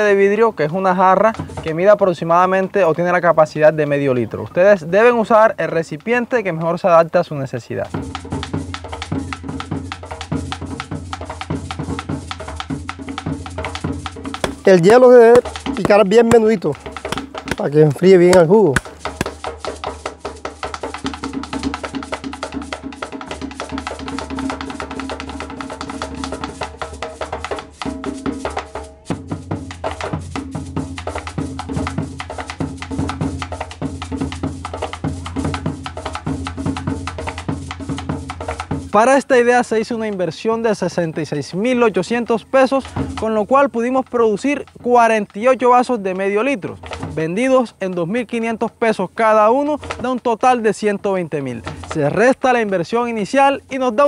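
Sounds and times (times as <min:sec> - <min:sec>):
percussion beat: 0:01.1 - 0:02.0, 0:07.8 - 0:48.8, 0:51.5 - 0:54.0
drum-kit beat: 0:14.4 - 0:19.4.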